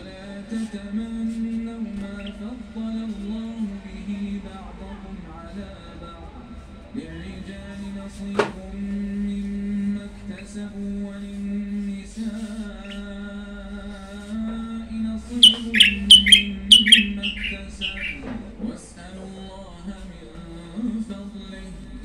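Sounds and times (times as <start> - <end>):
songbird chirping: 0.0 - 4.3, 12.2 - 21.7
steady low hum: 0.0 - 22.0.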